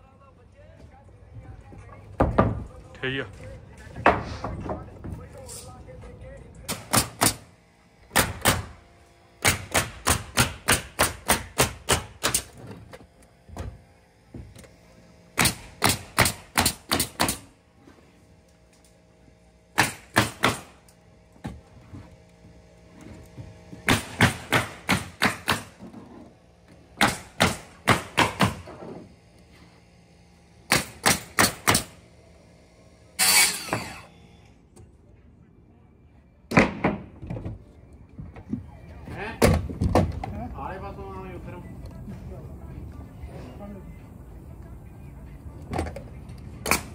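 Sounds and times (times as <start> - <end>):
pneumatic nailer driving nails: 6.7 - 8.8, 9.4 - 13.8, 14.4 - 17.6, 19.7 - 21.6, 23.7 - 29.1, 30.6 - 32.0, 33.2 - 34.5, 46.6 - 46.9
circular saw cutting: 33.0 - 34.4.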